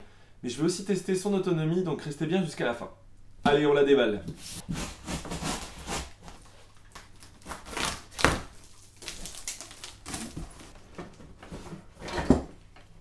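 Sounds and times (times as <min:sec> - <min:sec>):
cardboard flaps scraping: 0:04.3 - 0:12.0.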